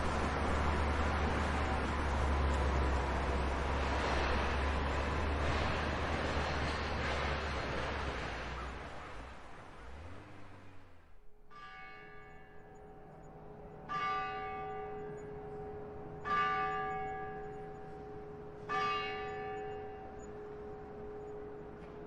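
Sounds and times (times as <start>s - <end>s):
church bell ringing: 11.4s - 22.0s.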